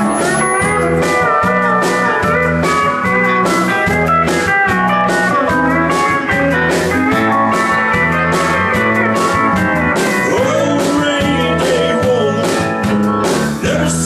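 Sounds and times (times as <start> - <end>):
live country band playing: 0.0 - 14.0.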